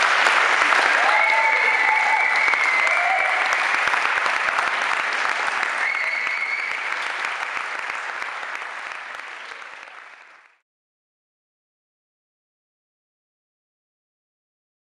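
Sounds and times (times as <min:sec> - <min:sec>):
audience clapping: 0:00.0 - 0:10.6.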